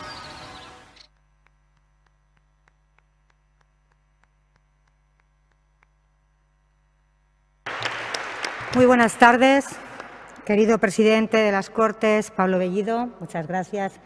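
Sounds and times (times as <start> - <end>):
steady low hum: 0.0 - 14.0
faint evenly spaced ticks: 1.0 - 6.0.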